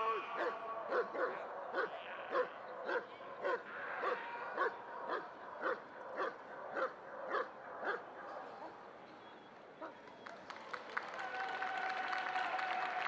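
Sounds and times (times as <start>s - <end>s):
dog barking: 0.4s - 8.8s.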